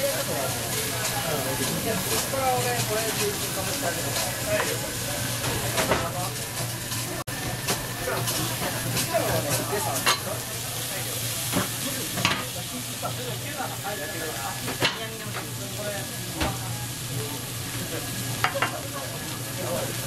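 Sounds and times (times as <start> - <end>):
food sizzling on griddle: 0.0 - 20.0
metal utensils clinking on griddle: 0.4 - 4.8.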